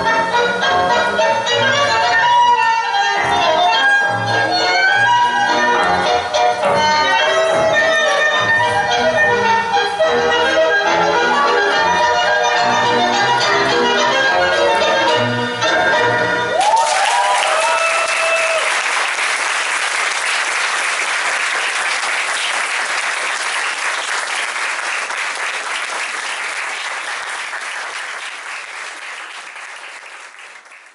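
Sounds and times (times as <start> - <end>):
tango music: 0.0 - 16.6
audience applause: 16.5 - 30.9.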